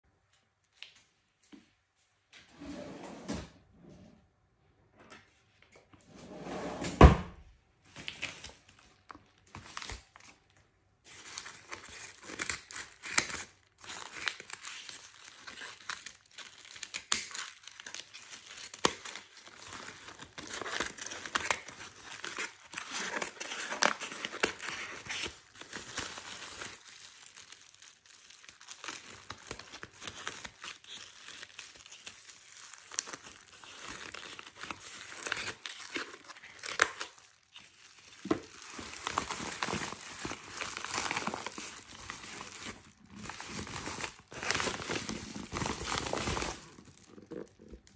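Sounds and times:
plastic bag crinkling: 0:08.0 - 0:47.9
scissors cutting plastic: 0:11.7 - 0:26.3.

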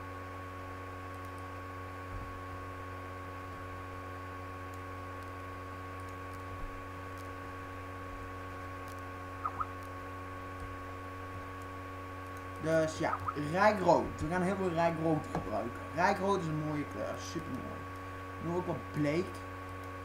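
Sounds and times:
steady electrical hum: 0:00.0 - 0:20.0
short chirps: 0:09.4 - 0:09.8.

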